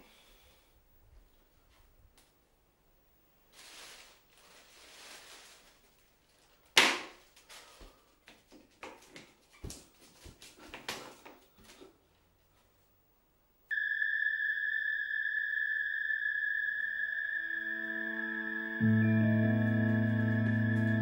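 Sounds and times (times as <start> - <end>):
soft rustle: 3.5 - 10.7.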